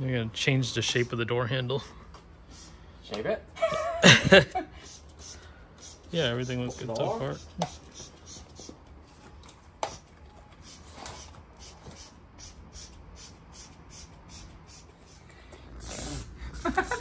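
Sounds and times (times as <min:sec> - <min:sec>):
spray bottle squirting: 0:04.9 - 0:08.8.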